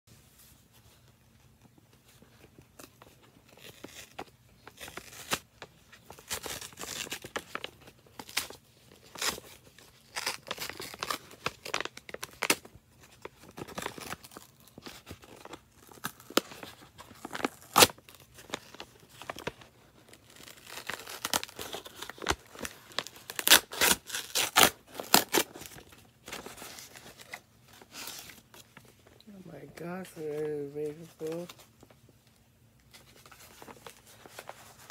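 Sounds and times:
paper envelope tearing: 0:03.4 - 0:05.5, 0:06.1 - 0:28.4.

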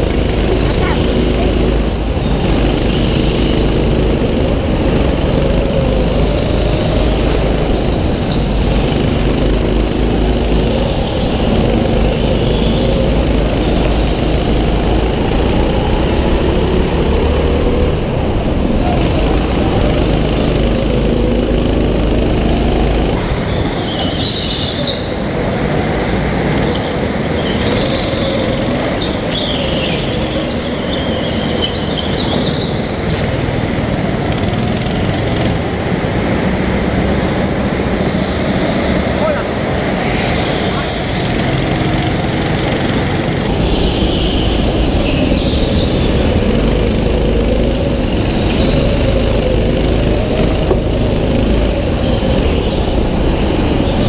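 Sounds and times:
tyres squealing: 0:00.0 - 0:23.2, 0:40.2 - 0:54.0
kart engine running hard: 0:00.0 - 0:54.0.

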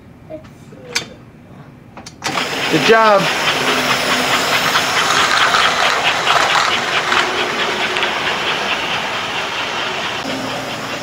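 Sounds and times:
toy train running on track: 0:02.3 - 0:11.0.

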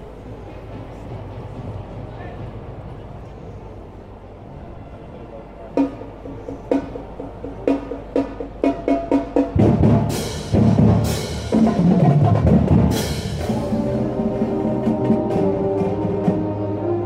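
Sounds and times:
drum strokes: 0:05.8 - 0:16.8
marching band brass playing: 0:07.6 - 0:17.0.

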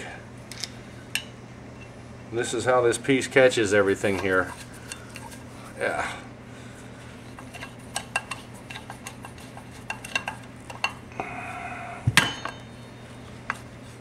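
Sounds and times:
low steady hum: 0:00.0 - 0:14.0
grating sound: 0:04.0 - 0:05.9
sharp metal clank: 0:12.2 - 0:12.7.

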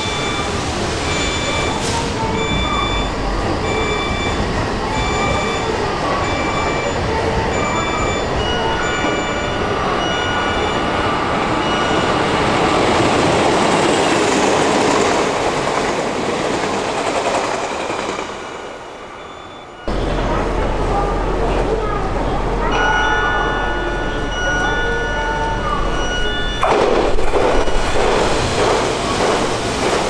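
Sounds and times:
electric train passing at speed: 0:00.0 - 0:30.0
electronic beep: 0:02.4 - 0:12.4, 0:19.1 - 0:20.0.

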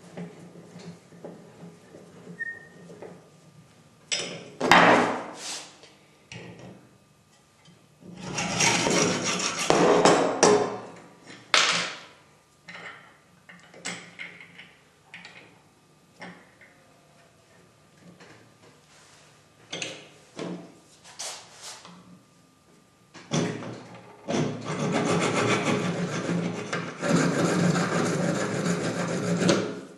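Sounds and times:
rasping metal scraping: 0:08.2 - 0:09.9, 0:24.3 - 0:29.8.

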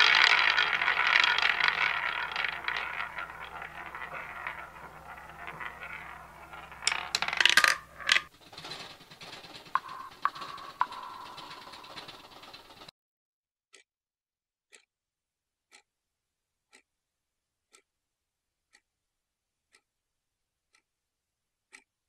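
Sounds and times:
playing cards clattering: 0:00.0 - 0:12.9.

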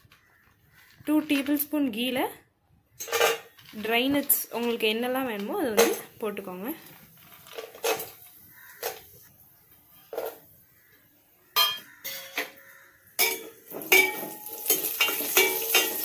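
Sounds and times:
metal clinks on steel pot: 0:13.2 - 0:16.0.

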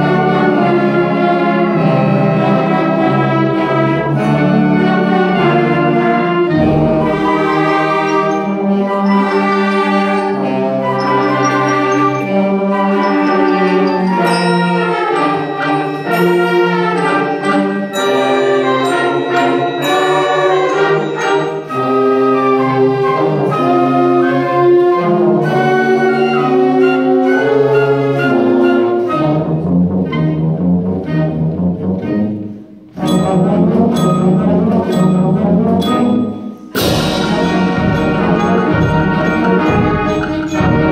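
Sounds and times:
concert band playing chords: 0:33.0 - 0:40.9.

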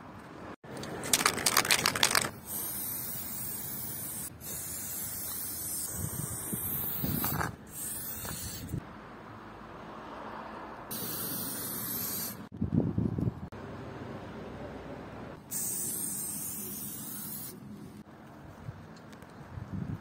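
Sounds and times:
spray can ball rattling: 0:00.8 - 0:08.8, 0:15.5 - 0:17.5
spray paint hissing: 0:01.1 - 0:08.8, 0:10.9 - 0:12.5, 0:15.4 - 0:17.6.

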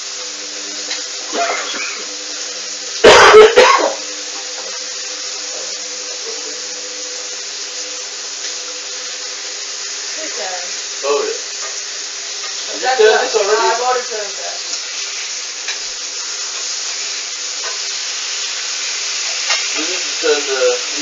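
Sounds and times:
water running into washing machine: 0:00.0 - 0:16.2, 0:17.2 - 0:21.0
loud sudden burst: 0:03.0 - 0:04.0.

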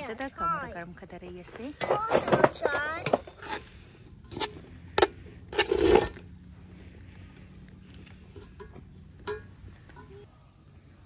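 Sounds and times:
metal tongs clanking on pot: 0:08.3 - 0:10.2.

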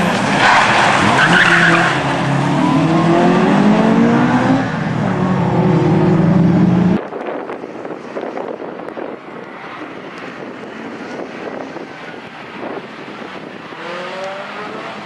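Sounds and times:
car engine revving: 0:00.0 - 0:07.0, 0:13.7 - 0:15.0.

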